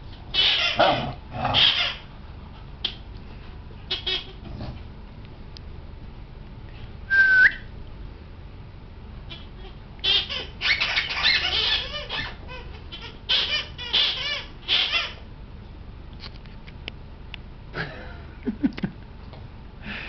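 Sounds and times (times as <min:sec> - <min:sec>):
squeaky toy squeaking: 0:00.3 - 0:02.0, 0:03.9 - 0:04.4, 0:09.3 - 0:15.2.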